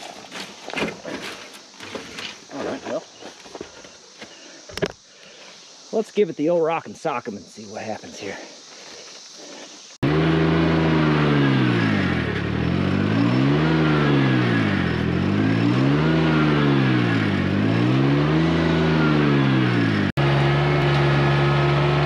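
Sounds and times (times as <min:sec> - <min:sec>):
vehicle engine working hard: 0:10.0 - 0:22.0.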